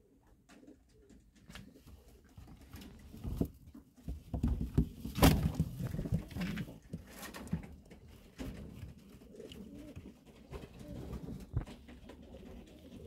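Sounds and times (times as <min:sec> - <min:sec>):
pigeons flapping: 0:04.4 - 0:13.0.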